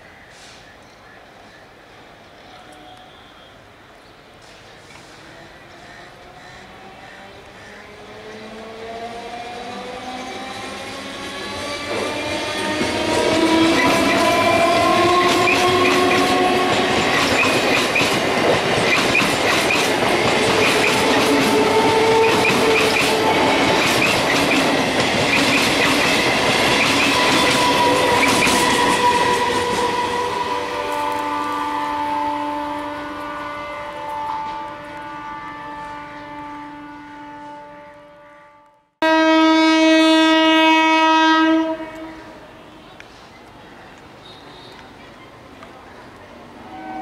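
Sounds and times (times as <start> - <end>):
multi-tone train horn: 2.5 - 3.7, 9.5 - 18.4, 20.0 - 24.3, 26.2 - 42.9, 46.6 - 47.0
train rushing past: 4.4 - 37.8.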